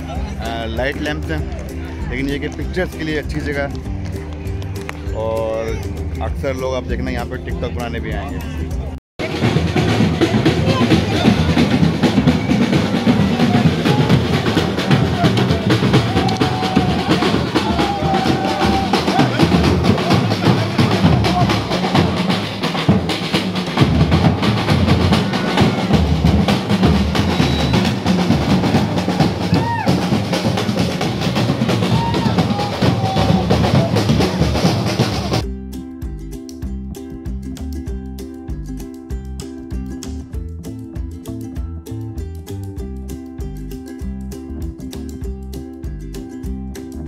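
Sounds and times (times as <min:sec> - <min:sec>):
crowd voices: 0:00.0 - 0:35.4
drum band marching beat: 0:09.2 - 0:35.5.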